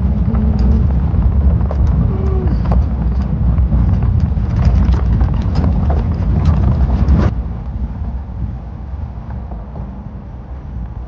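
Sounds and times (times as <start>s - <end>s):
knocks and rattles from bumps: 0.0s - 7.3s
truck rumbling on dirt track: 0.0s - 11.0s.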